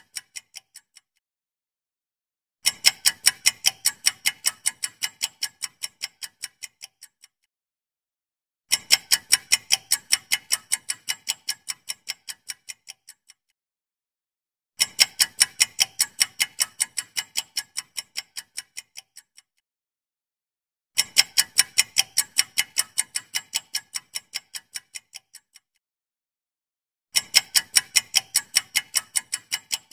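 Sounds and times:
countdown timer ticking: 21.1s - 25.4s, 27.2s - 29.9s.

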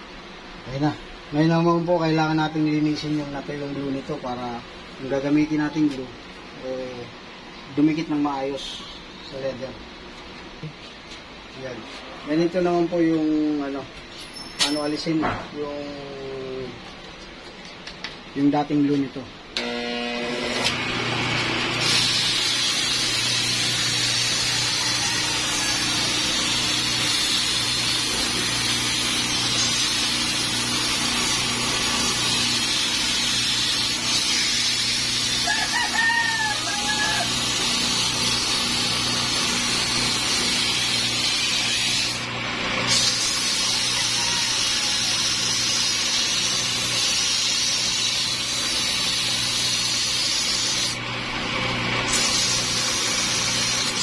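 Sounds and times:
electric motor lathe humming: 19.6s - 35.5s, 37.2s - 54.0s
rooster crowing: 24.2s - 26.8s, 35.4s - 37.6s, 43.6s - 45.5s.

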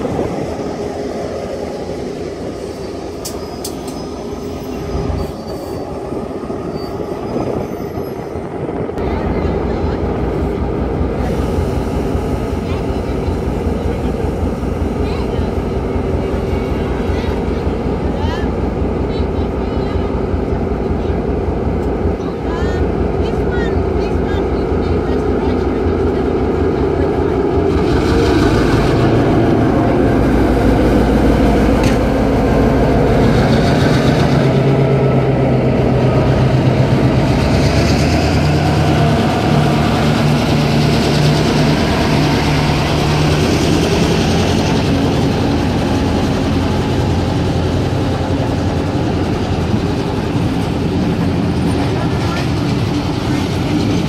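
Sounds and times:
diesel locomotive engine running: 0.0s - 54.0s.

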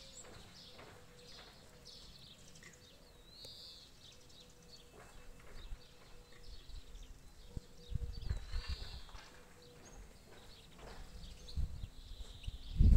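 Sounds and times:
birds chirping: 0.0s - 12.9s
wind rumble on microphone: 6.4s - 9.3s, 10.8s - 12.9s.

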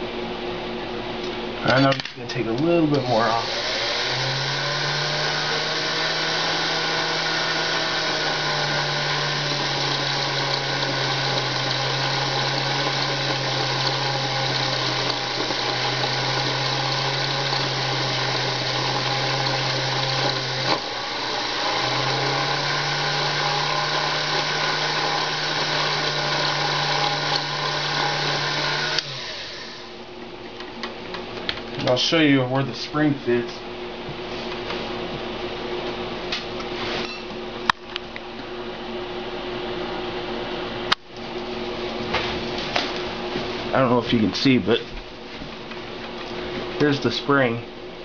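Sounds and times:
lathe motor humming: 2.9s - 30.0s.

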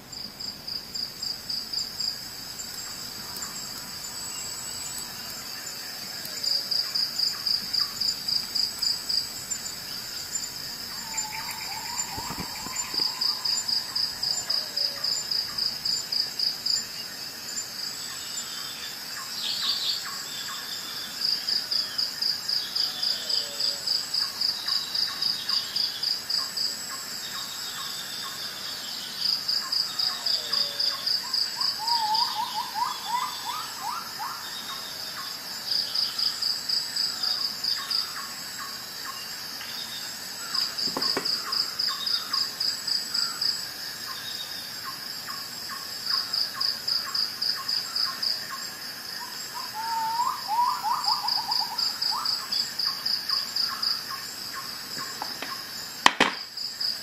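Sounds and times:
cricket chirping: 0.0s - 57.0s
short falling bird calls: 10.9s - 13.6s.

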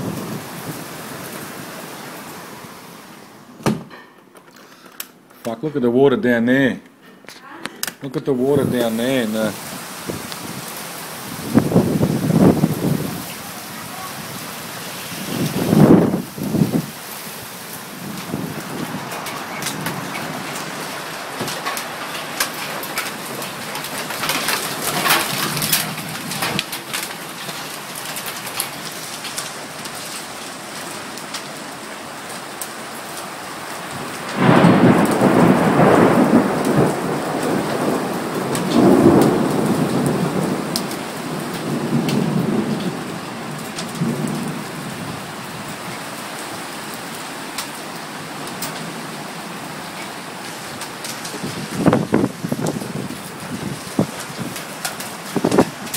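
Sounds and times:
thunder rumbling: 0.0s - 1.9s, 8.6s - 17.0s, 17.8s - 28.6s, 33.9s - 45.3s, 50.8s - 55.9s
rain pattering on wooden deck: 0.0s - 5.6s, 7.3s - 55.9s
hailstone ticks: 53.9s - 55.9s.

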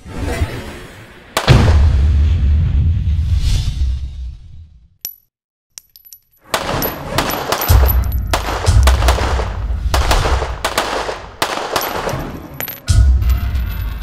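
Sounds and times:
pistol shots: 6.5s - 12.8s.

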